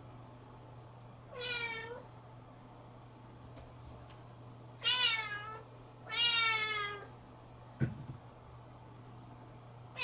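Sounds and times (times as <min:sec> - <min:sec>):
kitten meowing: 0:04.8 - 0:07.1.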